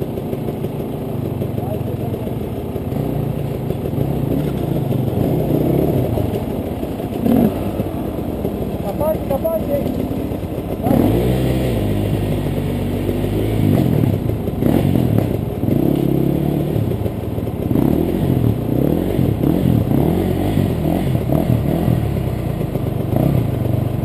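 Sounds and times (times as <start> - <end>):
dirt bike engines running: 0.0 - 24.0
engine throttle blips: 0.0 - 24.0.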